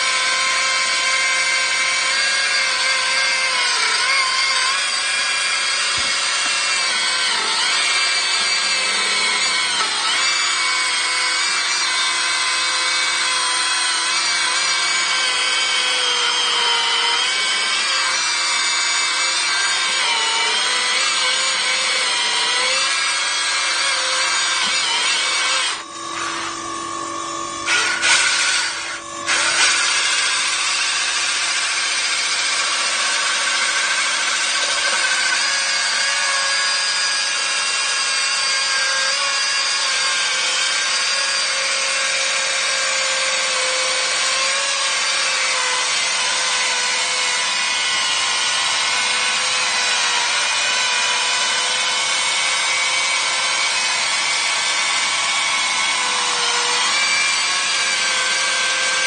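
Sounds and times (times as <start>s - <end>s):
chainsaw cutting into concrete: 0.0s - 59.0s
sharp knocks of saw bar: 5.9s - 6.6s.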